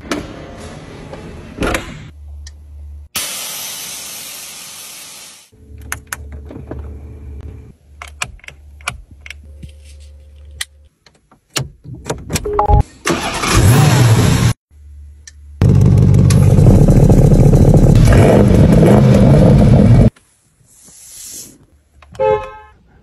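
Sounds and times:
loud even hiss: 3.2 - 5.5.

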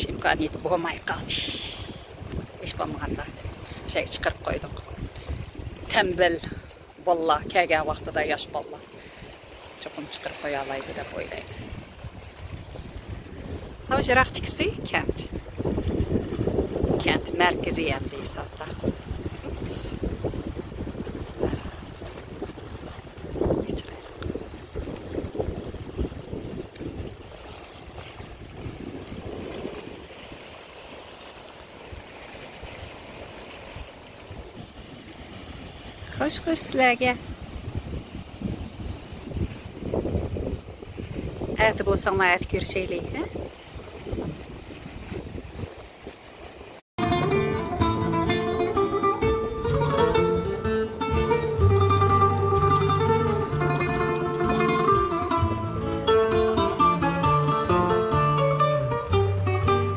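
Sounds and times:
wind rumble on microphone: 0.0 - 9.9, 10.8 - 31.0, 31.7 - 46.8
waves lapping against rocks: 0.0 - 46.8
low held bass notes: 47.0 - 59.9
plucked guitar: 47.0 - 59.9.

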